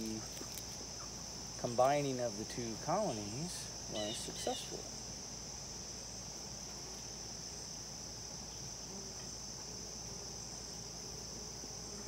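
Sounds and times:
high-pitched insect chorus trilling: 0.0s - 12.0s.

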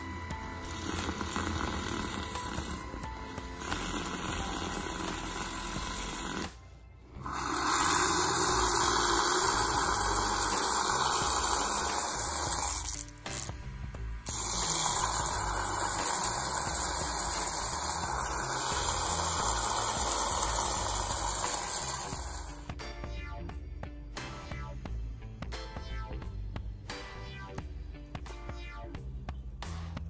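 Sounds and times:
milk frother whirring: 0.0s - 13.5s, 14.3s - 22.7s.

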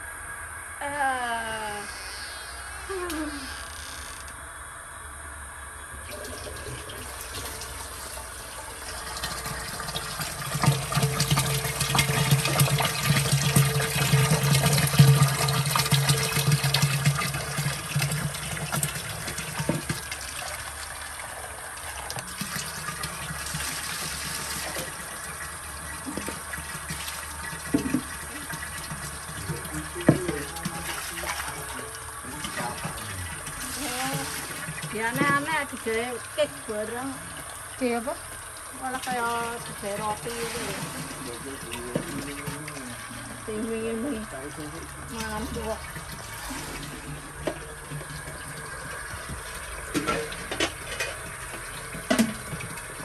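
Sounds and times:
water pouring and splashing: 6.0s - 53.0s
dipper knocking on containers: 9.2s - 20.2s, 26.1s - 31.0s, 34.6s - 35.7s, 41.7s - 42.7s, 47.1s - 53.0s.

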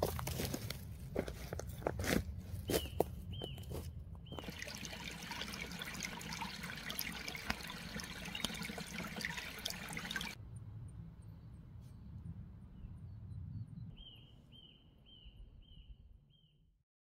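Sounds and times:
stream trickling over pebbles: 4.3s - 10.4s.

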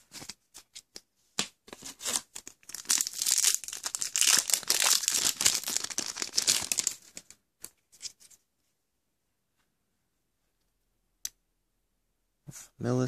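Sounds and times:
foil wrapper tearing and crinkling: 2.0s - 7.2s.

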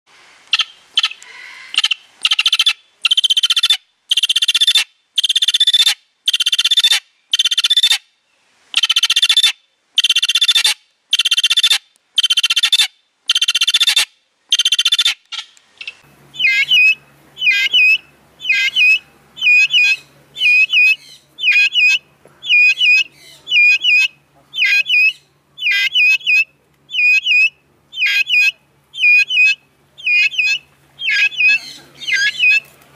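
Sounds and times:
guineafowl harsh raspy calls: 0.5s - 8.0s, 8.8s - 32.7s
steady low hum: 15.6s - 32.9s.

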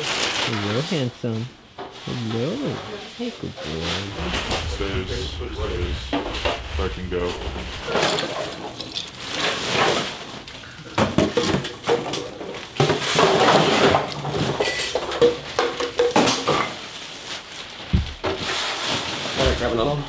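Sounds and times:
rustling: 3.7s - 9.3s.

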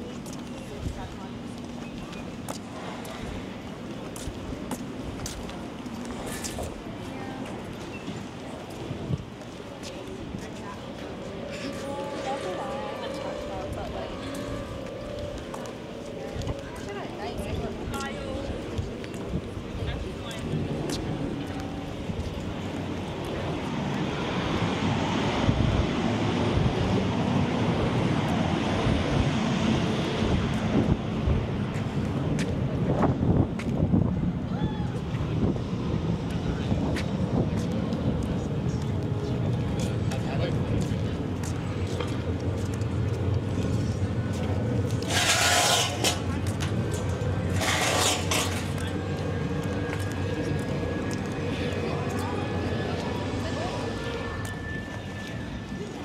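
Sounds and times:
street traffic: 0.0s - 56.0s
wind buffeting microphone: 16.3s - 45.0s.

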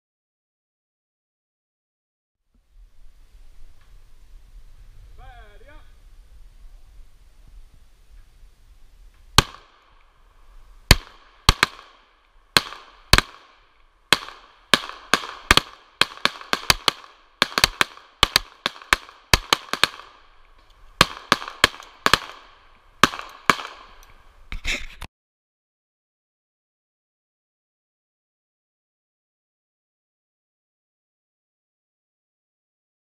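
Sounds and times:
pistol shots with echo: 9.4s - 9.9s, 10.9s - 20.4s, 21.0s - 24.1s.

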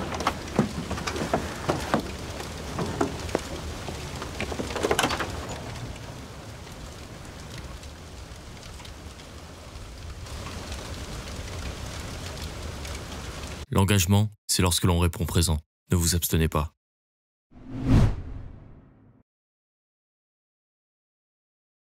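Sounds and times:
steady rain: 0.0s - 13.7s.

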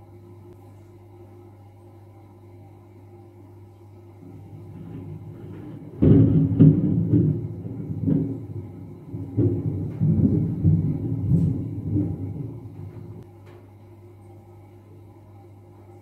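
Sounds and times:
thunder rolling: 4.3s - 13.2s.

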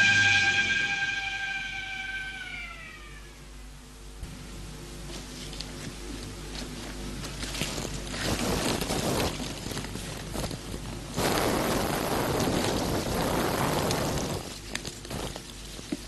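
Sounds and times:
paper and leaf litter rustling: 5.0s - 16.0s.

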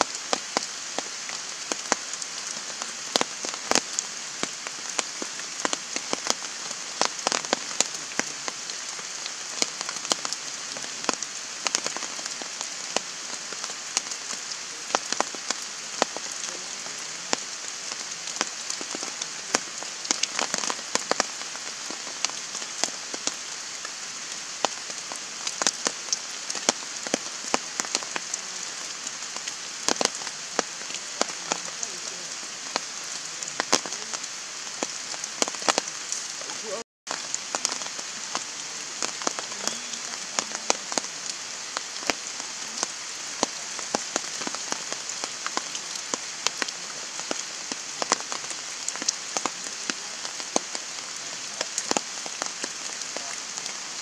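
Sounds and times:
heavy rain hissing: 0.0s - 54.0s
raindrops ticking: 0.0s - 54.0s.

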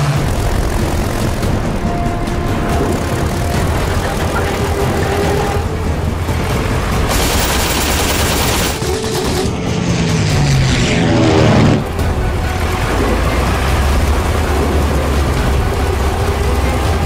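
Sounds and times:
rapid gunfire: 0.0s - 1.7s, 7.0s - 9.5s
propeller plane engine: 0.0s - 17.0s.

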